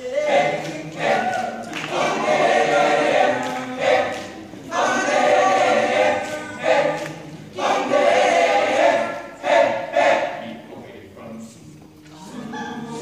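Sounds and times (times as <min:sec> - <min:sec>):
men's choir singing: 0:00.0 - 0:10.8.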